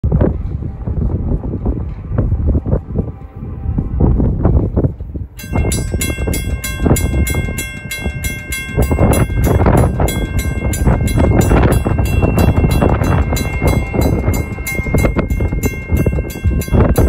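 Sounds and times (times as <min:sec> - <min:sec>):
low rushing noise: 0:00.0 - 0:17.0
railroad crossing bell ringing: 0:05.4 - 0:17.0.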